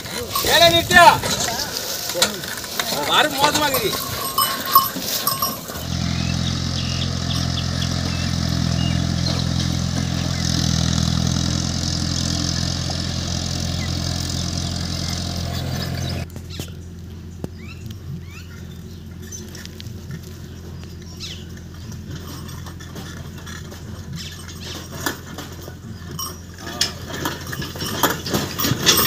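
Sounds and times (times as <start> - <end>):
motor running steadily: 0.0 - 26.7.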